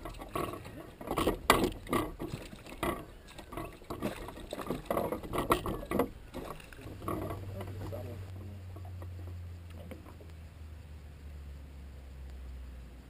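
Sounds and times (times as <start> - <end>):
gear knocking in metal boat: 0.0 - 8.1.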